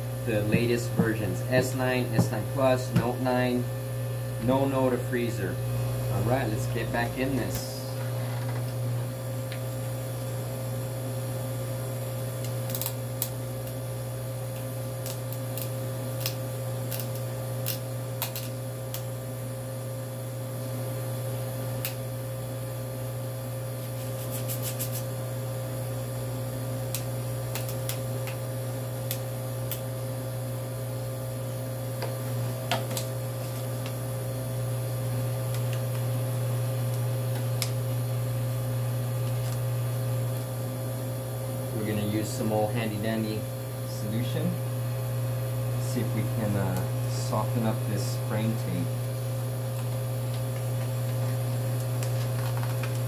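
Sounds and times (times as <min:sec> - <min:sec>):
low electrical hum: 0:00.0 - 0:53.0.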